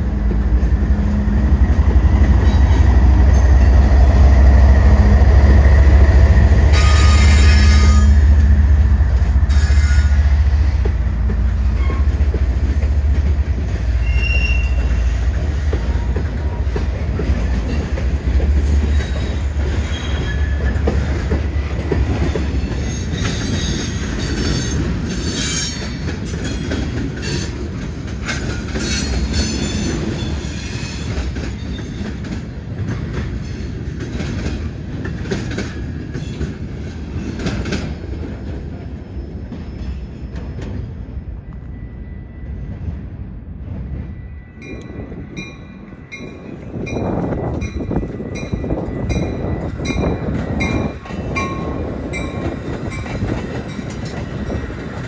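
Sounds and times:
freight train rumbling past: 0.0 - 55.0
wheel squeals: 14.0 - 15.1, 18.9 - 20.8.

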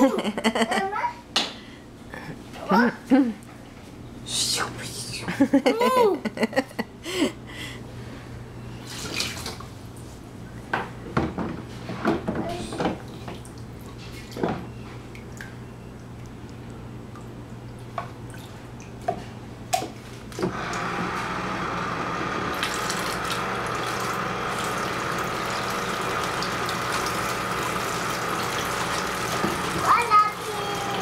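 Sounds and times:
water splashing into tub: 8.8 - 9.7, 22.5 - 31.0.

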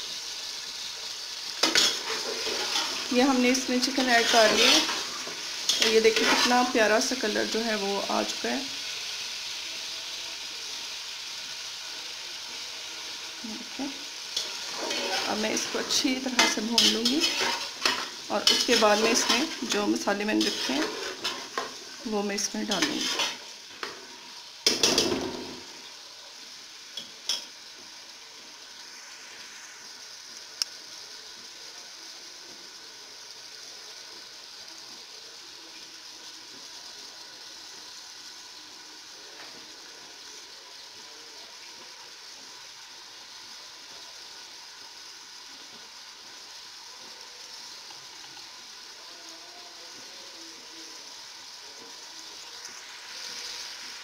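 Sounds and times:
chicken and onions sizzling in oil: 0.0 - 54.0
metal spatula scraping a pot: 1.6 - 6.8, 14.4 - 25.5.

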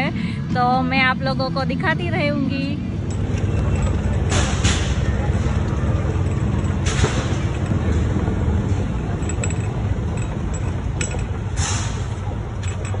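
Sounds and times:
vehicle rumbling on gravel: 3.0 - 13.0.

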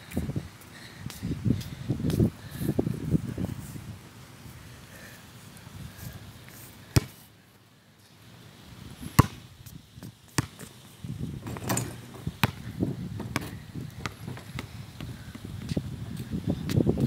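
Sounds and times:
basketball bouncing on concrete: 7.0 - 7.2, 9.2 - 9.4, 10.4 - 10.7, 11.4 - 15.8.

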